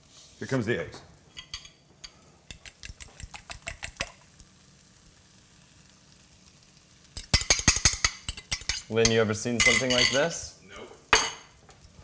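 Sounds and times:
fork whisking eggs in glass bowl: 2.5 - 4.2.

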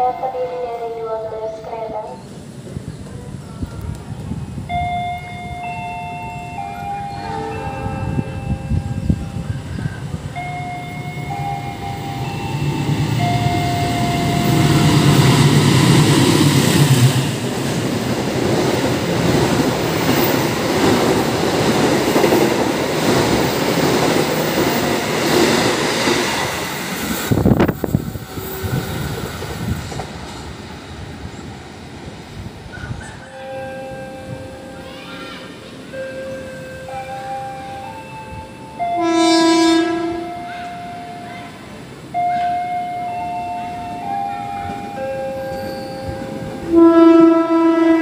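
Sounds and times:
train horn: 13.2 - 15.3, 38.7 - 43.2, 43.9 - 48.0.

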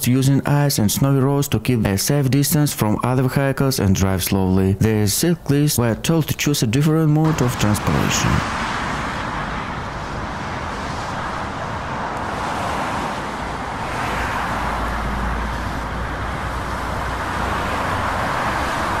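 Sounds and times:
tyres hissing on wet road: 7.2 - 19.0
large vehicle rumbling past: 7.3 - 19.0.

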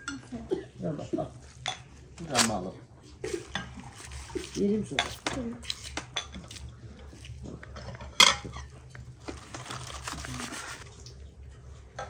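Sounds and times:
foil crinkling: 2.2 - 2.7, 3.3 - 7.8, 8.6 - 10.9
knife carving meat: 3.3 - 8.2.

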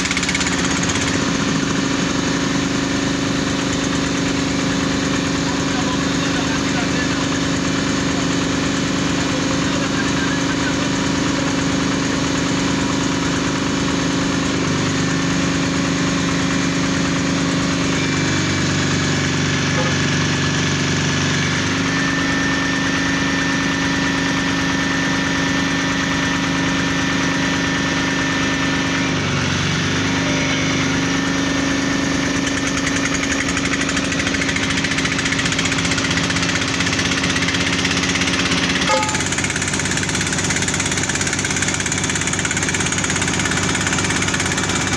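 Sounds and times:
drilling rig engine running: 0.0 - 44.9
thin high whine: 38.8 - 39.4.

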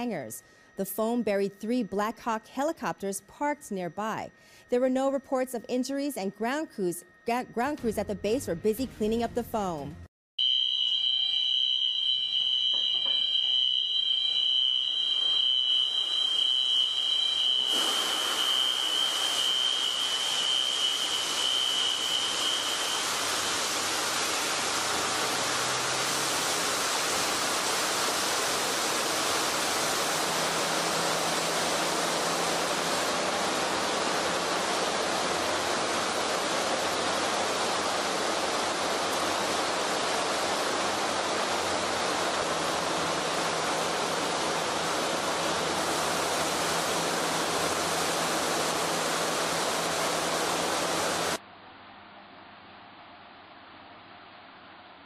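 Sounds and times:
high-pitched alarm tone: 0.0 - 9.8, 10.4 - 35.9
foam generators rushing: 10.4 - 51.4.

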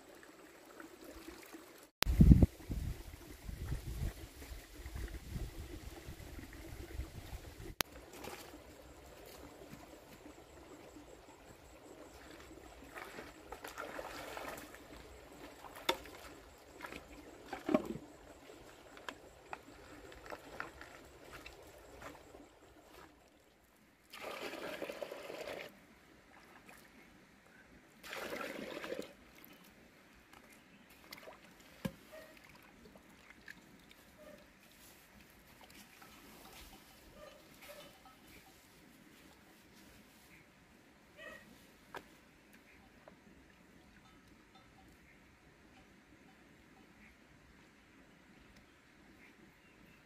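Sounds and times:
small splashes and knocks: 7.8 - 10.4, 12.0 - 23.3, 28.0 - 36.8
water pouring into plastic bucket: 24.1 - 25.7, 28.0 - 29.5.

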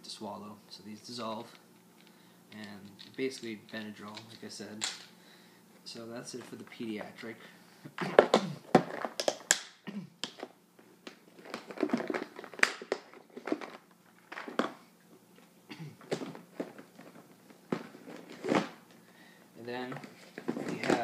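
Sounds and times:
plastic boxes clicking and clattering: 8.0 - 10.5, 11.1 - 14.8, 16.0 - 18.8, 19.8 - 21.0.

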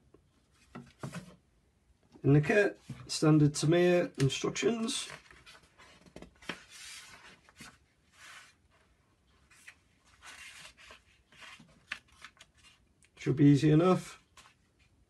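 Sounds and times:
paper pages rustling: 4.2 - 8.8, 9.4 - 12.9, 14.2 - 14.9.

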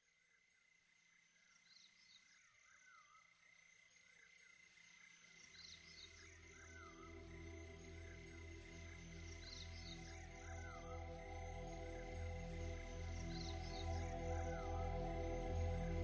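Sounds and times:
soft ambient music: 5.5 - 16.0.

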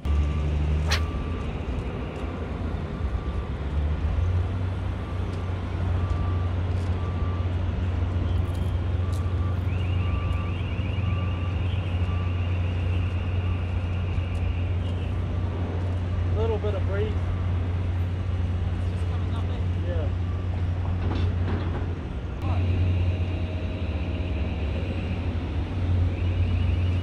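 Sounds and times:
heavy truck engine rumbling: 0.0 - 27.0
reversing beeper beeping: 6.0 - 7.6, 8.2 - 14.7, 20.2 - 20.6, 22.5 - 27.0.

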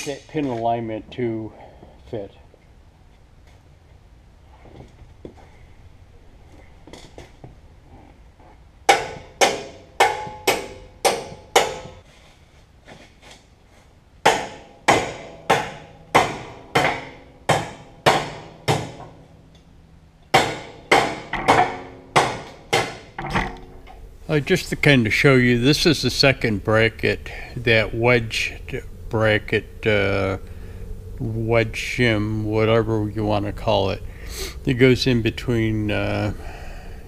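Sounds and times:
hammer striking steel: 8.9 - 12.0, 14.2 - 19.2, 20.3 - 23.7.

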